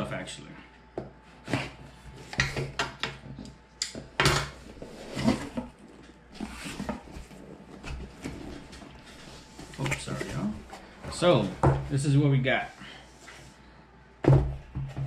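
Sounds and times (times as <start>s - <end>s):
cardboard box scraping and rustling: 4.7s - 11.5s.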